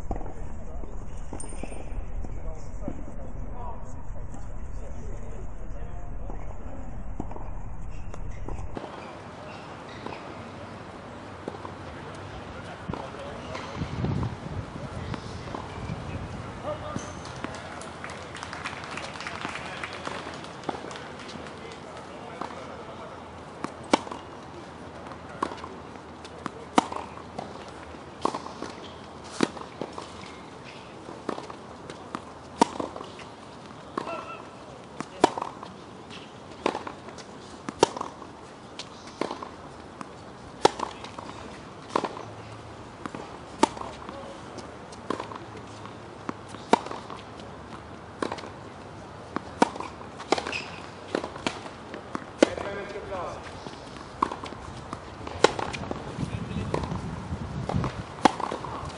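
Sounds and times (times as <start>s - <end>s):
racket hitting tennis ball: 0.0s - 2.3s, 7.0s - 8.8s, 23.6s - 24.3s, 26.3s - 27.6s, 31.0s - 33.3s, 34.0s - 42.3s, 43.0s - 47.5s, 48.1s - 48.6s, 49.2s - 57.0s, 57.6s - 58.9s.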